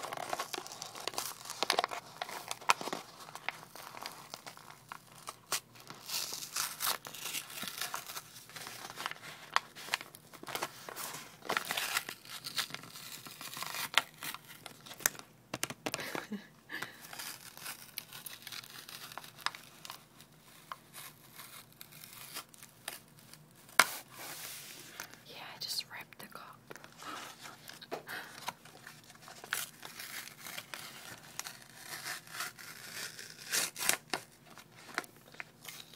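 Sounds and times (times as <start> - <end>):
paper crinkling: 0.0 - 25.2, 26.4 - 35.9
paper cup tearing: 29.4 - 34.3.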